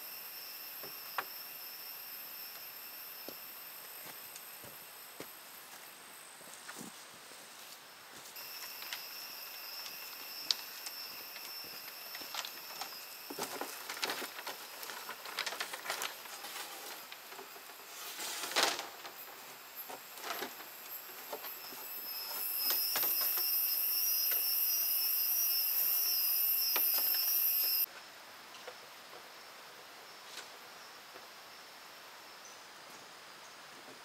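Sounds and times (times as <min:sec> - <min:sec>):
high-pitched insect buzzing: 0:00.0 - 0:04.8, 0:08.4 - 0:14.9, 0:20.7 - 0:27.9.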